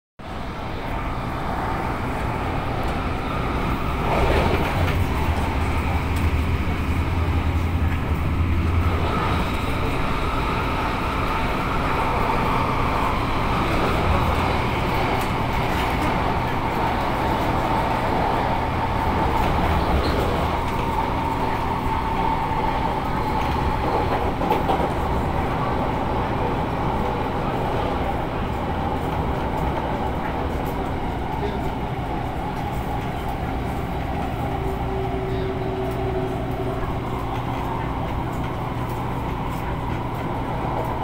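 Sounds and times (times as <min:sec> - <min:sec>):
train wheels and motors rumbling: 0:00.2 - 0:41.0.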